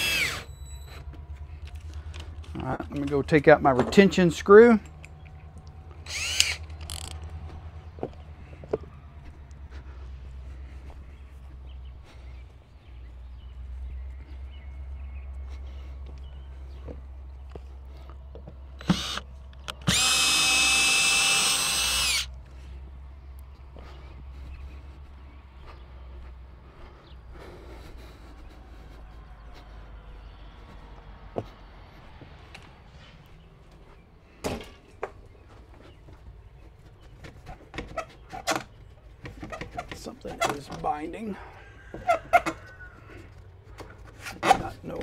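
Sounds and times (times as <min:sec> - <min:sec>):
cordless drill running: 0:00.0 - 0:00.5, 0:06.0 - 0:07.1, 0:18.8 - 0:22.4
chickens clucking: 0:39.3 - 0:44.1.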